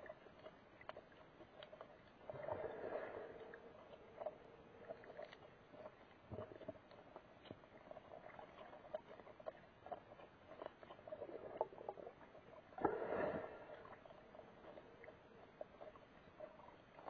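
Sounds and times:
underwater clicks and crackles: 0:00.0 - 0:17.0
low underwater wash: 0:02.2 - 0:06.6, 0:11.1 - 0:16.6.

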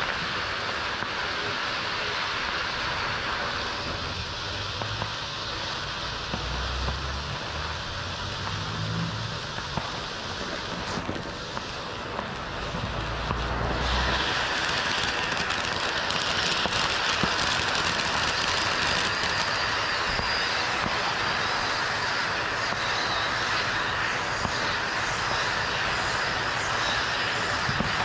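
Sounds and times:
firework fountain hissing: 0:00.0 - 0:28.0.

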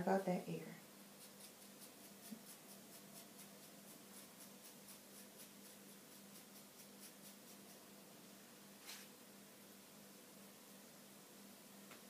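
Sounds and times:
razor comb shaving hair: 0:01.2 - 0:07.8.

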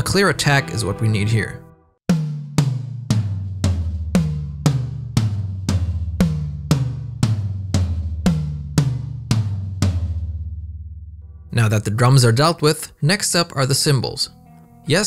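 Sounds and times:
low tom drum hits: 0:02.1 - 0:10.9.

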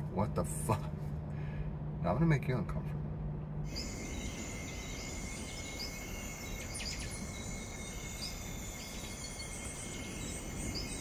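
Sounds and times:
low steady background noise: 0:00.0 - 0:11.0
insects droning: 0:03.5 - 0:11.0
bird chirps: 0:03.7 - 0:11.0.

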